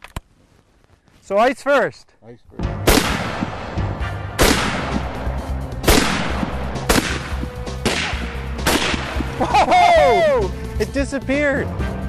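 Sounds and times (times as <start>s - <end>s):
rifle shots with ringing tail: 2.8s - 9.2s.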